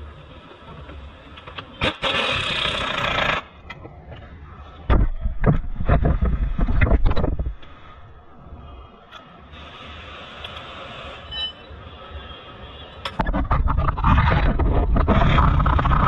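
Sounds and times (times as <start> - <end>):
pneumatic tool hissing: 1.8 - 3.5.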